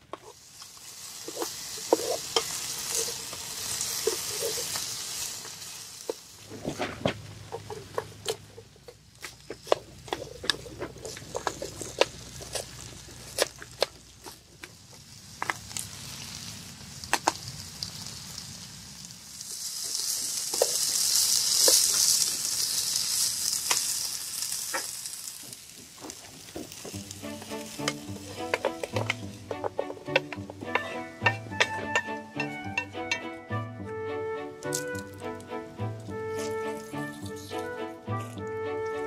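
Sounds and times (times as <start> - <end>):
chicken and onion sizzling: 0.0 - 39.0
utensil clicking against pan: 26.1 - 33.3.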